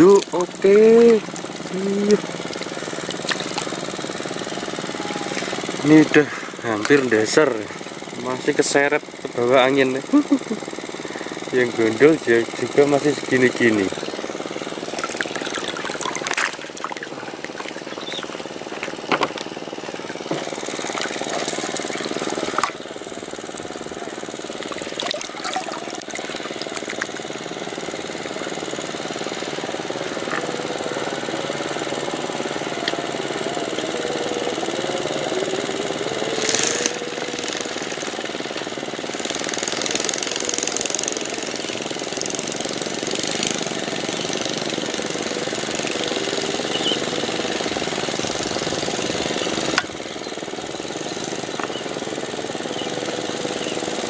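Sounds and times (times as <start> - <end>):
motor running steadily: 0.0 - 54.0
sharp clicks: 31.2 - 54.0.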